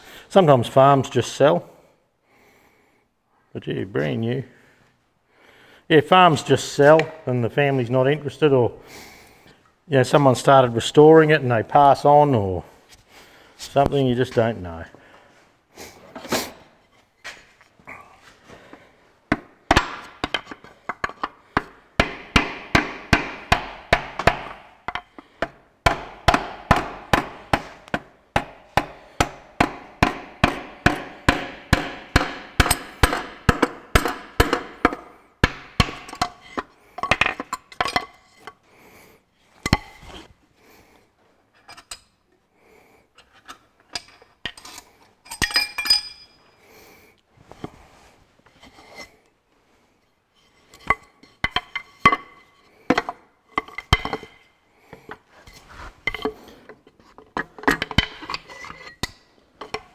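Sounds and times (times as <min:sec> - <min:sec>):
hammer handle knocking on metal: 0:22.0 - 0:36.4
metal clinks: 0:45.2 - 0:46.6.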